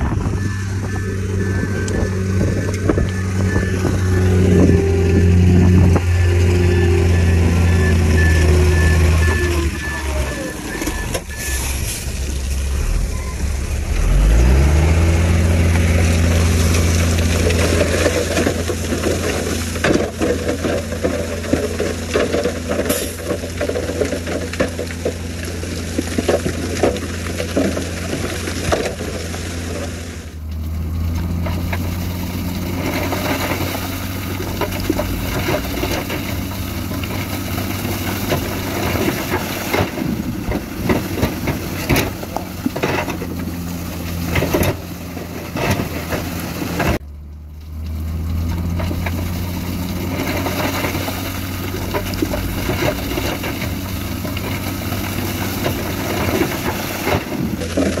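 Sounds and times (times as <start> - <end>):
heavy diesel machinery running: 0.0 - 58.0
rock clattering and scraping: 13.7 - 47.0, 47.6 - 58.0.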